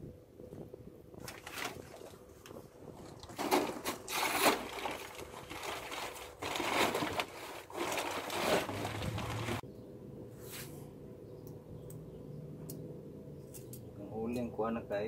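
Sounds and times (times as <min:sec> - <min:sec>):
charcoal rattling and rustling: 0:01.2 - 0:09.6.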